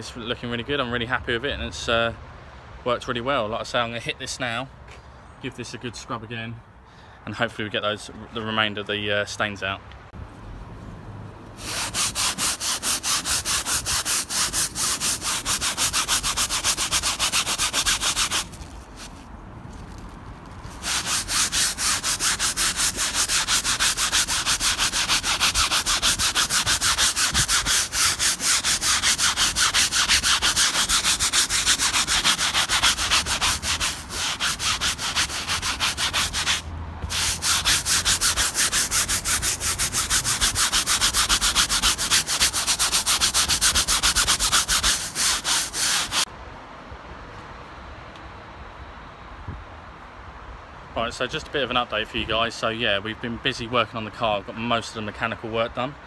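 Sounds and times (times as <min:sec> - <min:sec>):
brush scrubbing fabric: 0:11.6 - 0:46.3.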